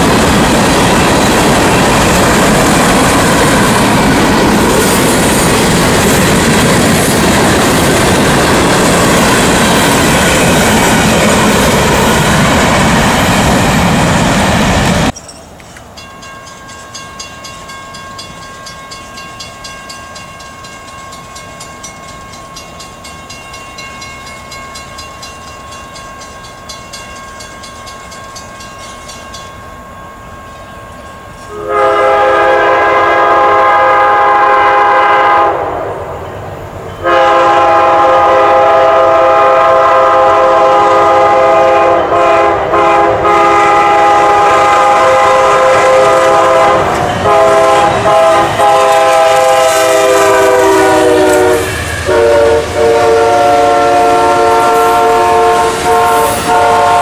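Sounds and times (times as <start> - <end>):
train air horn blasts: 31.5 - 35.8, 37.0 - 57.0.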